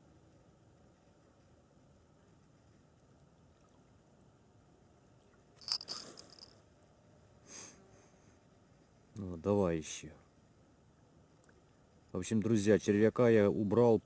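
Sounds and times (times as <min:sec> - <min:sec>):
small bell jingling: 0:05.6 - 0:06.6.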